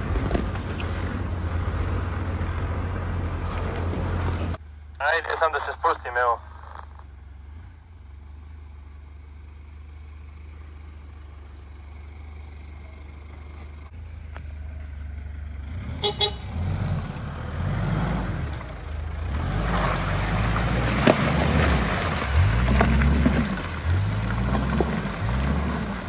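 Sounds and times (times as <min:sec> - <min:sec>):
off-road vehicle engine revving: 0:00.0 - 0:04.6, 0:09.5 - 0:26.0
tyre and track noise: 0:19.6 - 0:26.0.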